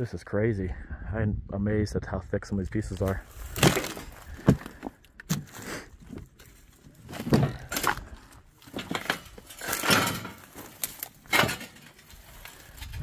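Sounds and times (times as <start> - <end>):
scuffs and knocks among scrap steel: 2.9 - 13.0.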